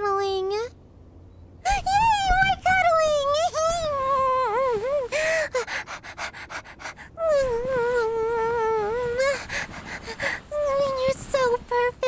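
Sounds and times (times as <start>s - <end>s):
woman whining like a puppy: 3.8s - 11.3s
woman panting: 4.6s - 10.6s.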